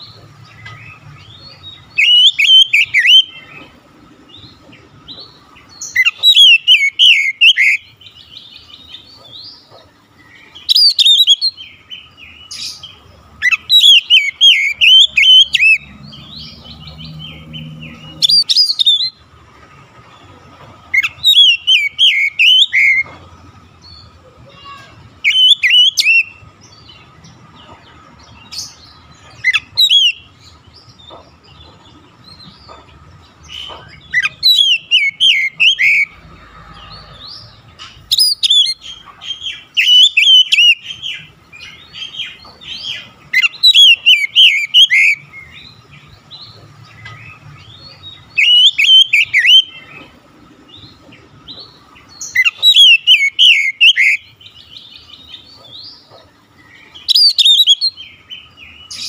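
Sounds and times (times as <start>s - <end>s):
bird singing whistled phrases: 2.0s - 3.3s, 5.9s - 7.8s, 10.7s - 11.6s, 21.0s - 23.0s, 25.2s - 26.4s, 34.2s - 36.1s, 48.4s - 49.8s, 52.3s - 54.2s, 57.1s - 58.0s.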